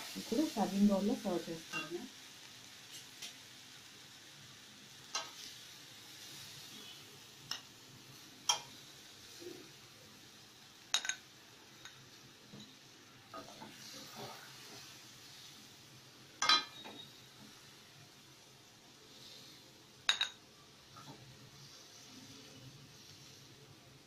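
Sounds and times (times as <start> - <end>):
faint pan sizzle: 0.0 - 24.0
metal spatula clinking on pan: 1.7 - 2.0, 5.1 - 5.4, 8.5 - 8.8, 10.9 - 11.2, 16.4 - 17.0, 20.1 - 20.4.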